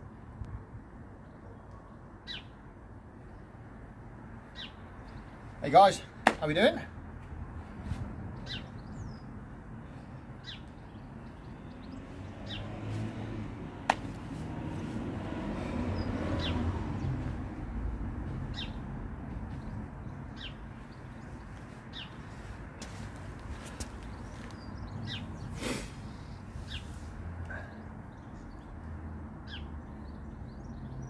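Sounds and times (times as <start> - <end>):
small birds chirping: 4.3 - 15.1, 18.2 - 31.0.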